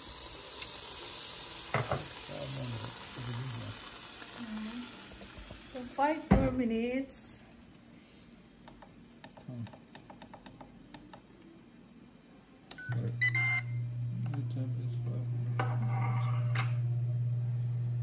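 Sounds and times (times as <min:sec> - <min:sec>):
indoor grill humming: 0:00.0 - 0:18.0
electronic beeps: 0:12.8 - 0:13.8.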